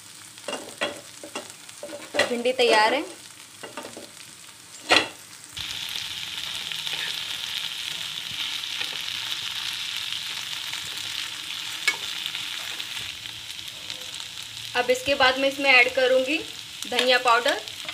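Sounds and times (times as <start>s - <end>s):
okra sizzling in a pan: 0.0s - 17.9s.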